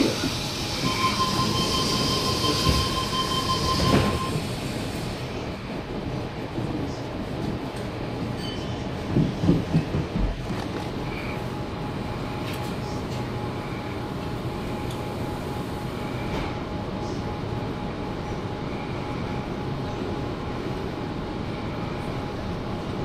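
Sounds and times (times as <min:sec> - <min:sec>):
thin steady whine: 0:00.0 - 0:05.6, 0:11.0 - 0:23.0
train wheels rumbling on track: 0:00.0 - 0:23.0.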